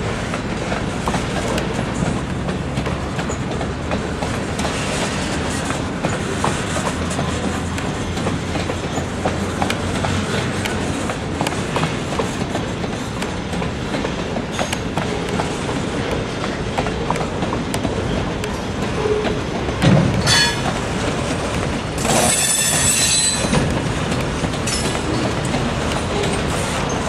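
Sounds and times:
steel wheels clicking over rail joints: 0.1 - 27.0
high-pitched wheel squeal: 20.2 - 20.7, 22.2 - 23.6.

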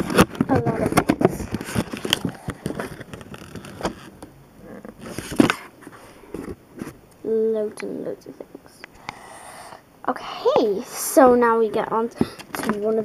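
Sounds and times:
toy packaging handling: 0.0 - 4.1, 4.7 - 6.9, 11.8 - 13.0.

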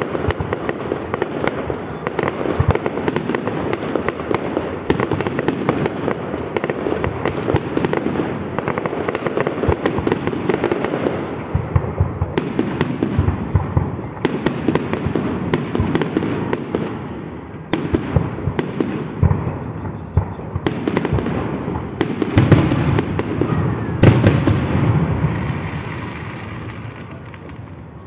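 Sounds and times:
crackling firework stars: 0.0 - 28.0
loud firework bang: 17.8 - 27.5.

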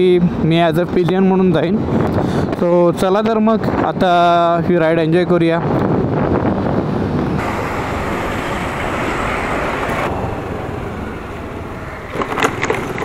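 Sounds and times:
scooter wind and road noise: 0.0 - 13.0.

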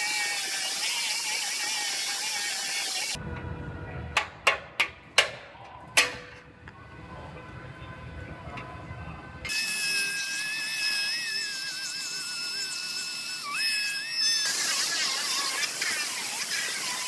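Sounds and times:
pneumatic cutting tool whine: 0.0 - 3.2, 9.5 - 17.0
low rumble: 3.2 - 4.5.

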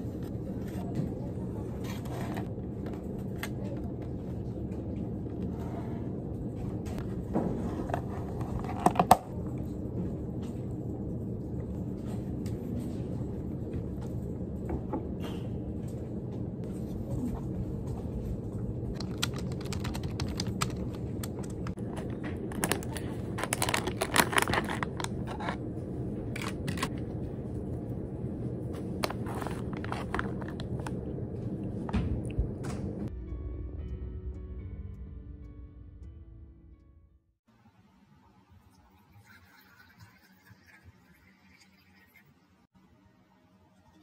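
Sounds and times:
low room hum: 0.0 - 35.6
foil snack pouch crinkling: 21.8 - 25.5, 29.0 - 30.9.

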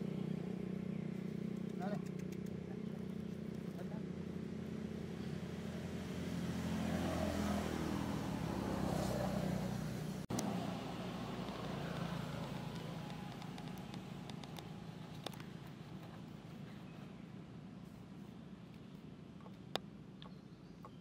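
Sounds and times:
vehicle engine running: 0.0 - 20.8
faint clicks: 11.4 - 15.5.

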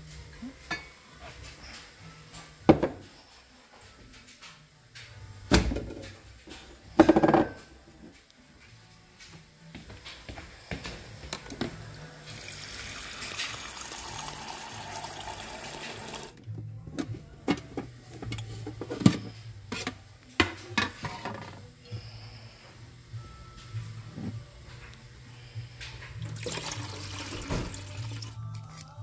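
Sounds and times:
coffee maker hum: 12.2 - 16.4, 26.2 - 28.3
liquid pouring into mug: 12.4 - 16.4, 26.2 - 28.4.

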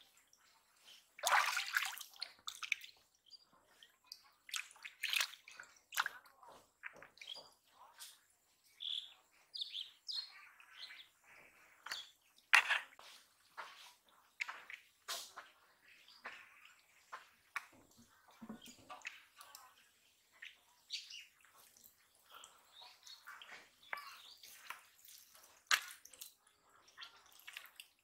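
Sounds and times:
hands splashing in muddy water: 1.2 - 2.9.

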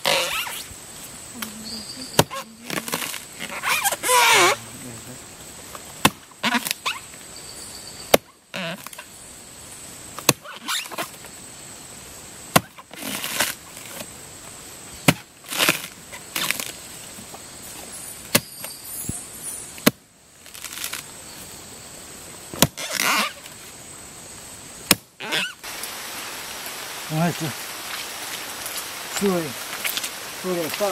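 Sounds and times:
axe chopping wood: 6.0 - 6.8, 8.1 - 8.3, 10.2 - 11.1, 12.5 - 13.6, 15.0 - 16.7, 18.3 - 18.6, 19.8 - 20.1, 22.5 - 23.3, 24.8 - 25.4.

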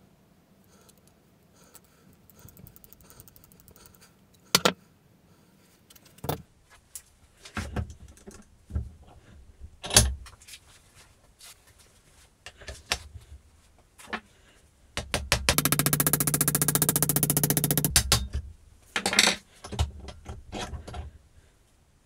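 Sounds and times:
light fast ticking: 0.8 - 4.4
sharp metal knocks: 15.0 - 18.4.

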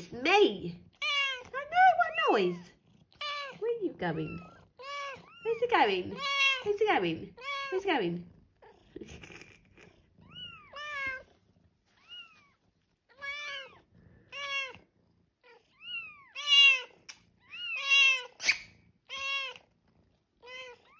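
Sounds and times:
cats meowing: 0.8 - 20.9
scratchy rustle: 9.0 - 13.8.

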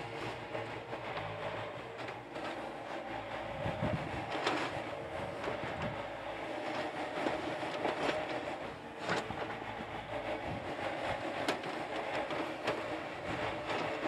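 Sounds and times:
excavator diesel engine running: 0.0 - 14.0.

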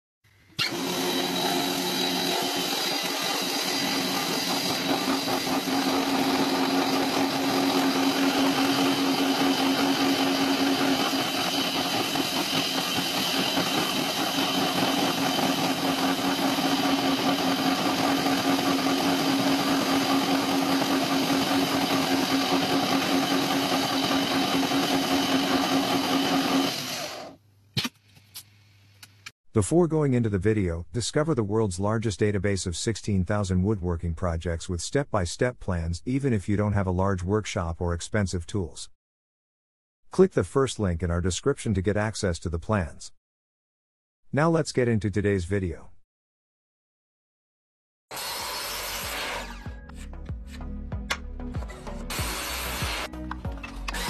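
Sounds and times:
wood cutting noise: 0.5 - 27.4, 48.1 - 54.0.

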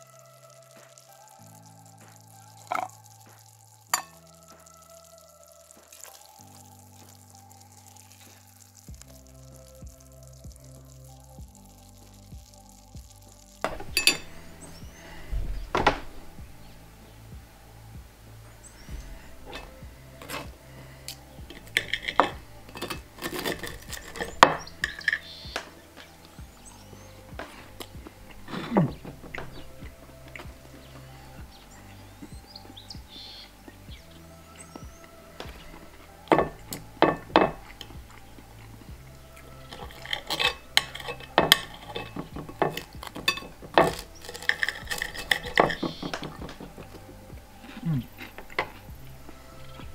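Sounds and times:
knife and fork clinking on plate: 13.7 - 14.3, 39.7 - 46.6.

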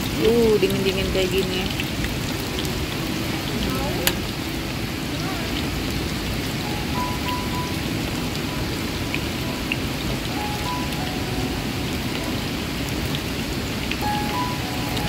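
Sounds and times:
food sizzling in hot oil: 0.0 - 4.6
steady rain: 0.0 - 15.0.

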